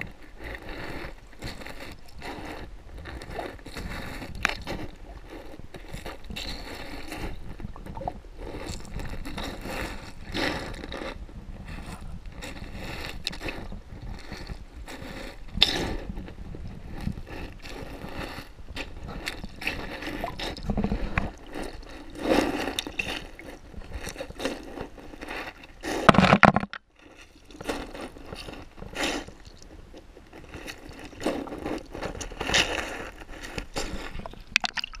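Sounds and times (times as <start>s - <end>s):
gurgling water underwater: 3.2s - 10.7s, 19.0s - 24.1s, 34.0s - 35.0s.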